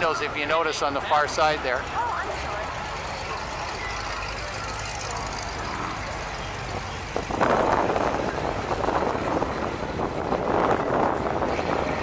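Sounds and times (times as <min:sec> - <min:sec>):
car and truck engines rumbling: 0:00.0 - 0:12.0.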